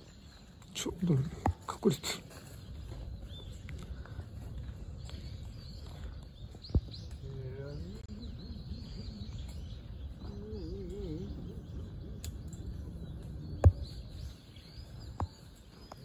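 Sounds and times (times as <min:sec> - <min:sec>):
high bird chirps: 0:00.0 - 0:16.0
steady low rumble: 0:02.6 - 0:15.2.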